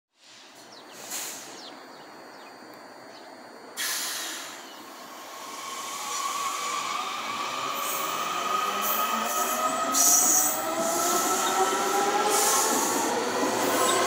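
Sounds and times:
air hiss: 0.2 - 1.6, 3.8 - 8.2, 8.8 - 13.9
train rumbling along track: 3.3 - 14.0.

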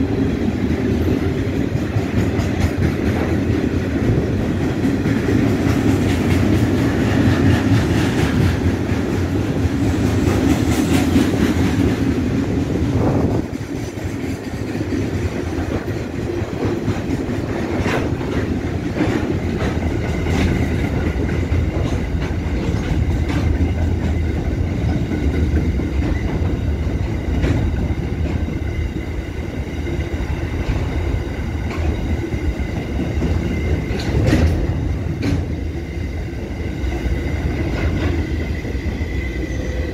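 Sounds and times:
freight train rail rumble: 0.0 - 39.9
wheels clacking over rail joints: 1.0 - 28.8, 30.2 - 35.7.

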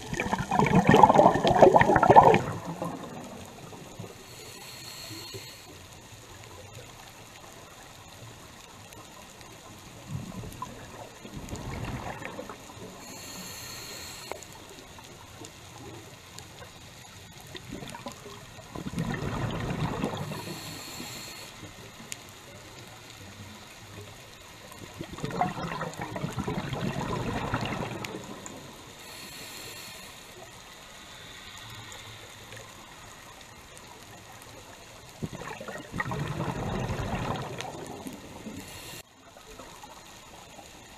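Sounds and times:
bubbly underwater exhalations: 0.0 - 4.0, 11.2 - 12.6, 17.7 - 20.6, 25.0 - 28.6, 35.2 - 38.6
regulator high hiss: 4.2 - 5.8, 13.0 - 14.7, 20.3 - 21.8.

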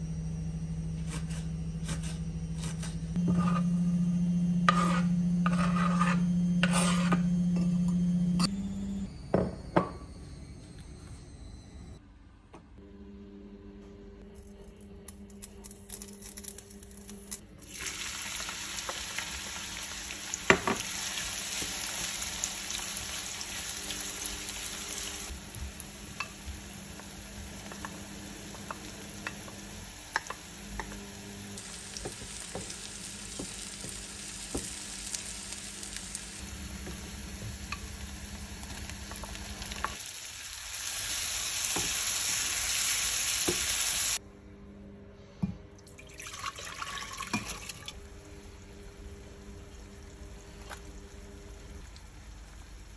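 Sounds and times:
food sizzling in hot oil: 17.7 - 30.5, 31.6 - 44.2.

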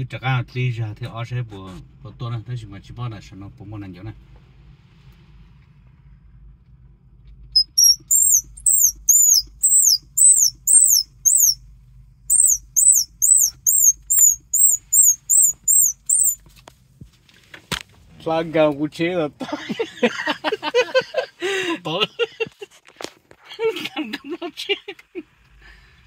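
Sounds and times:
high-pitched squirrel call squeals: 7.6 - 11.6, 12.3 - 16.4.

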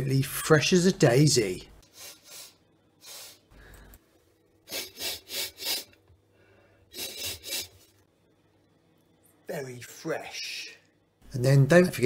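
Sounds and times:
man sniffing: 1.8 - 3.8, 4.6 - 6.0, 6.9 - 8.0.

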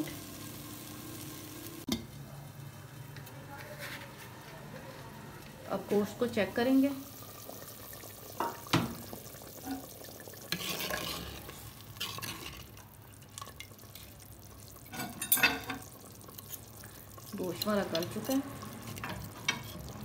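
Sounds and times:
ladle stirring stew: 7.3 - 20.0.

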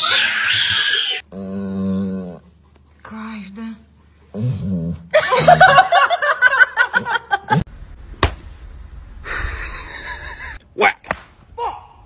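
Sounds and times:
person giggling: 5.2 - 7.6, 9.3 - 10.6.

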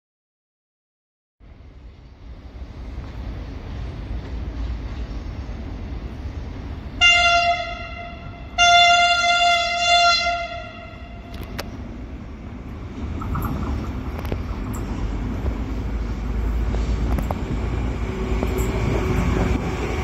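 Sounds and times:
low rumble of moving train: 1.4 - 20.0
train horn blasts: 7.0 - 11.6.

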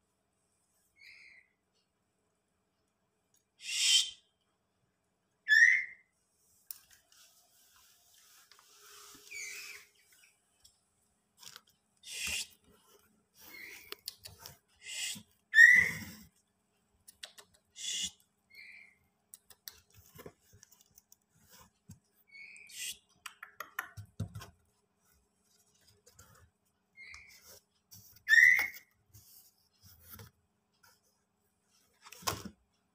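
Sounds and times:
high-pitched chirps and squeaks: 5.5 - 6.1, 9.2 - 10.2, 13.4 - 16.2, 17.3 - 19.0, 22.2 - 23.0, 27.0 - 27.4, 28.2 - 28.9
soft rustling and scraping: 6.2 - 14.8, 19.8 - 22.3, 24.4 - 32.8.

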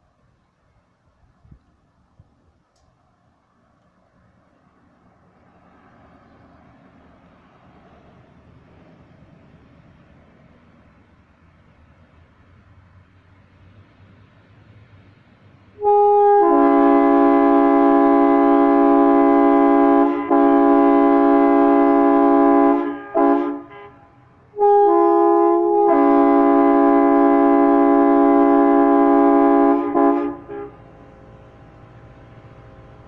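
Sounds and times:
train air horn blasts: 15.8 - 31.4.

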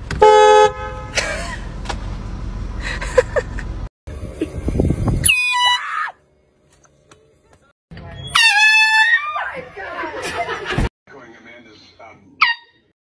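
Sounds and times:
car horn blast: 0.2 - 1.2
high falling cry: 5.2 - 6.2.

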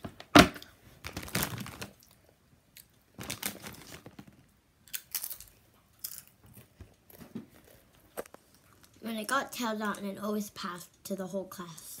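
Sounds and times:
chips being crunched and chewed: 4.9 - 6.3.

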